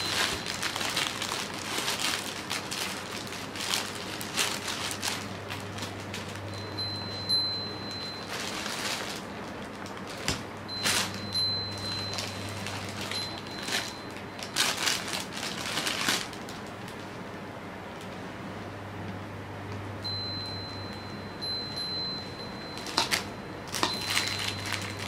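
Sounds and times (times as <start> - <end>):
thin high ringing tone: 0.0 - 1.6, 5.2 - 9.4, 10.6 - 15.4, 20.0 - 25.0
nylon fabric tunnel rustling: 0.0 - 16.7.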